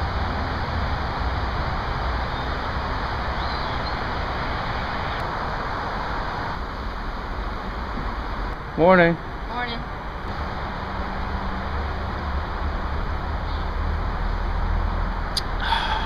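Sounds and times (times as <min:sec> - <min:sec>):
rushing outdoor background noise: 0:00.0 - 0:16.0.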